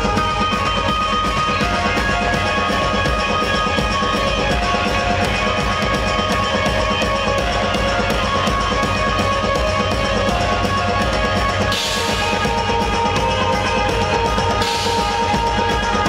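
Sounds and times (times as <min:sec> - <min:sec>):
electric guitar: 0:00.0 - 0:16.0
steady beat: 0:00.0 - 0:16.0.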